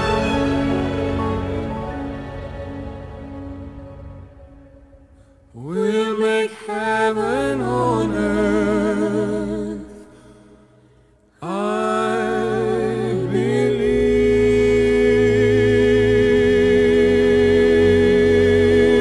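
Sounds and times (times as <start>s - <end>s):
person singing with quavering voice: 5.2s - 19.0s.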